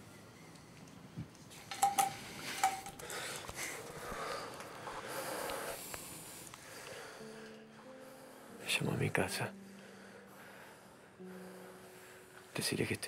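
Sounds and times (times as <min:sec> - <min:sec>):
metallic clinks: 0:01.7 - 0:03.1
men breathing heavily: 0:02.2 - 0:08.6, 0:09.6 - 0:12.6.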